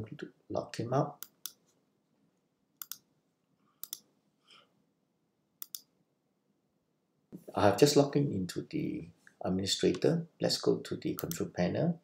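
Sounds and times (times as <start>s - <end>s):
computer mouse clicks: 1.2s - 1.7s, 2.8s - 3.1s, 3.8s - 4.1s, 5.6s - 5.9s, 11.2s - 11.4s.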